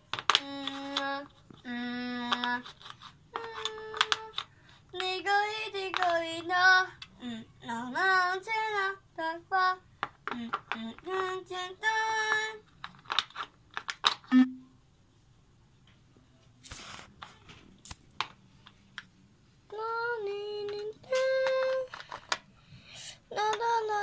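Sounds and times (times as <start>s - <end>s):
wooden puzzle pieces clicking: 2.2s - 4.5s
high voice singing wordless tune: 3.3s - 12.6s, 19.7s - 21.9s.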